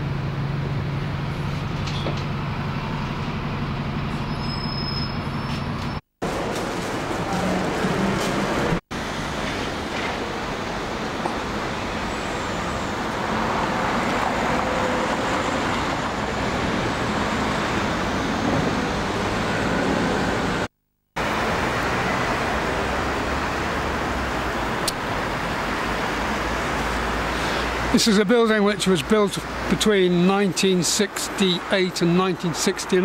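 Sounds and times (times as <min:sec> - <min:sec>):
cars driving past: 0:05.2 - 0:28.2.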